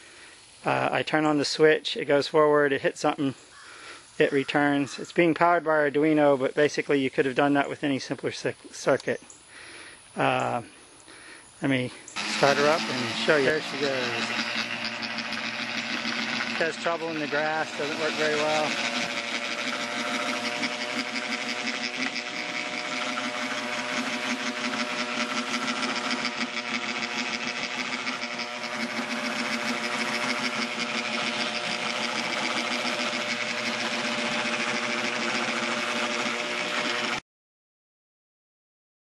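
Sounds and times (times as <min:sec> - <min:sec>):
robot mower motors whirring: 0:11.6 - 0:37.2
fine rapid ticking: 0:12.2 - 0:37.2.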